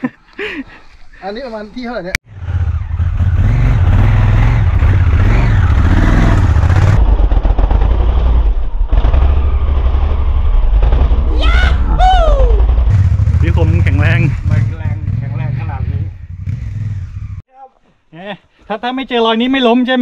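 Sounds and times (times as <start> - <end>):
dirt bike engine running: 2.3 - 11.3, 12.5 - 17.4.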